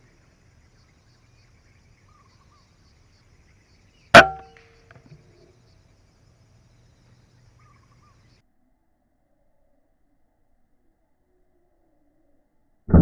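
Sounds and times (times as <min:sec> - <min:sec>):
air rifle shot: 0:04.2 - 0:04.6.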